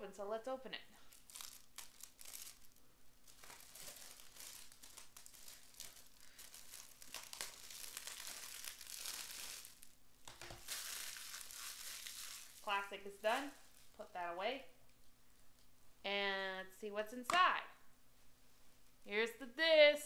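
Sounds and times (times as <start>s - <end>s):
plastic wrap tearing and crinkling: 1.0s - 14.0s.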